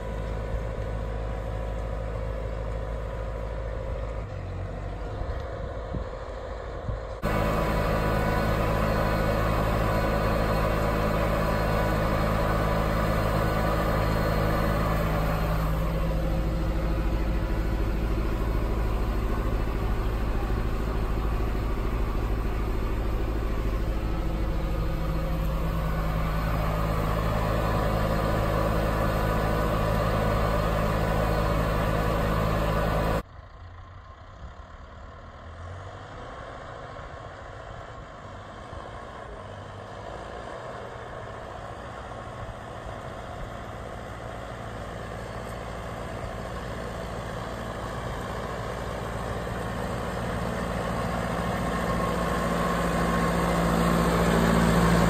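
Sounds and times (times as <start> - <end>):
tractor diesel engine: 0.0 - 55.0.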